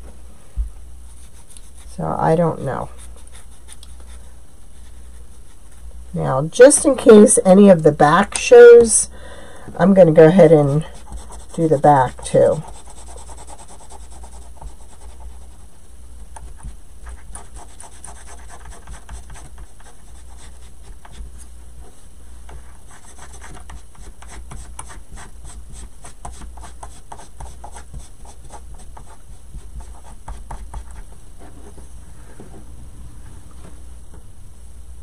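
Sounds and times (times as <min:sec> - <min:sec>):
paint marker scratching: 0:11.0 - 0:15.6, 0:16.4 - 0:21.2, 0:22.9 - 0:31.6.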